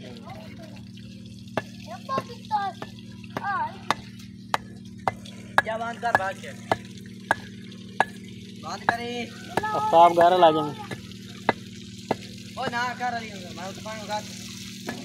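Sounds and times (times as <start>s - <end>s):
steady low hum: 0.0s - 15.0s
trowel tapping bricks: 1.6s - 8.2s.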